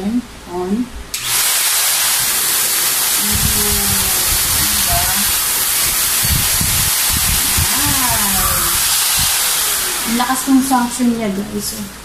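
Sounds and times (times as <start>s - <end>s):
handheld vacuum cleaner running: 1.2s - 11.1s.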